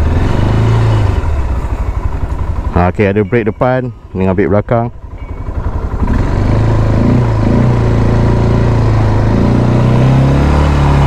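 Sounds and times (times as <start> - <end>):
atv engine running under throttle: 0.0 - 11.0.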